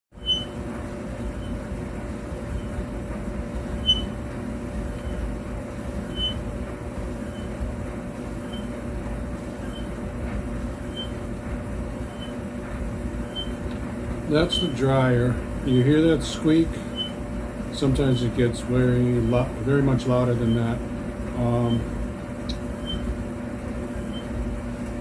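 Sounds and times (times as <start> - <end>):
short high squeak: 0.2 - 1.2, 2.1 - 2.4, 3.3 - 4.8, 5.7 - 6.4, 10.9 - 11.2, 13.2 - 13.6
clothes dryer drum rumbling: 0.2 - 25.0.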